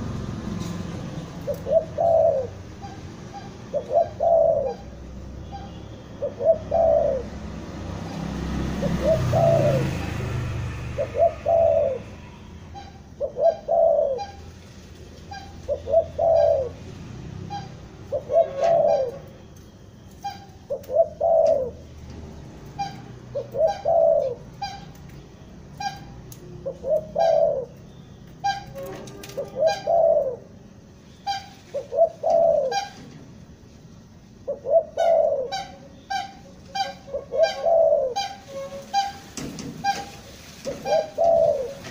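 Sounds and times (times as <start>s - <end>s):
dove cooing: 1.4s - 7.4s, 8.1s - 10.1s, 10.8s - 14.6s, 15.3s - 19.4s, 20.2s - 22.0s, 22.7s - 25.0s, 25.8s - 27.8s, 28.4s - 33.2s, 34.4s - 39.2s, 39.8s - 41.9s.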